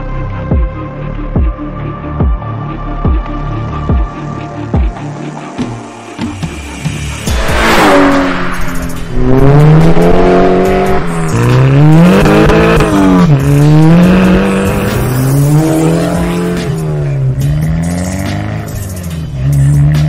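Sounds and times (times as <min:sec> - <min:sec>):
car engine accelerating hard: 0:07.3 - 0:20.0.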